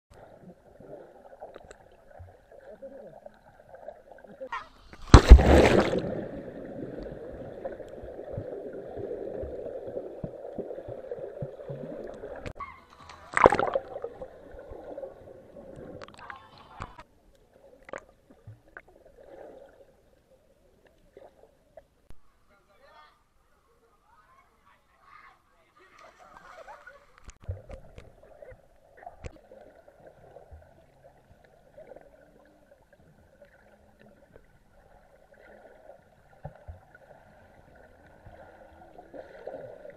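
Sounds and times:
muffled underwater water wash: 0.1 - 12.6, 13.3 - 22.1, 27.3 - 39.9
loud water splashes: 4.7 - 6.9, 13.3 - 14.2.

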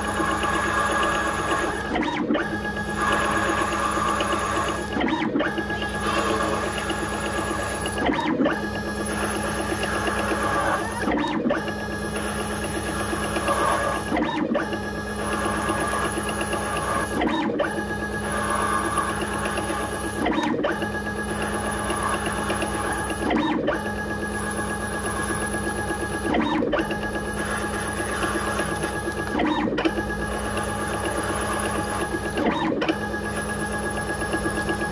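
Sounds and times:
lathe cutting metal: 0.0 - 32.9
motor whine: 0.0 - 34.9.

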